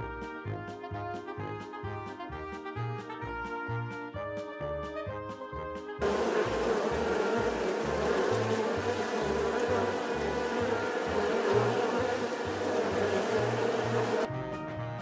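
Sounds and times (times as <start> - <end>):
bee buzzing: 6.0 - 14.3.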